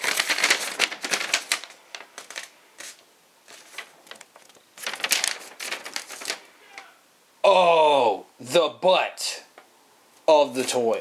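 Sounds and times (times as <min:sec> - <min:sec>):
paper rustling and crinkling: 0:00.0 - 0:07.0.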